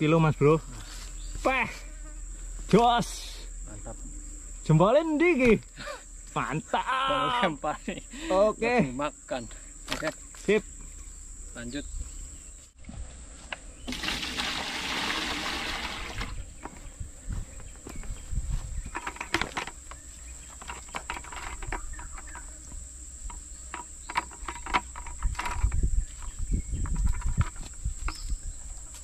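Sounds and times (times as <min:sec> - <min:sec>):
high-pitched insect drone: 0:00.1 - 0:12.7, 0:18.8 - 0:29.0.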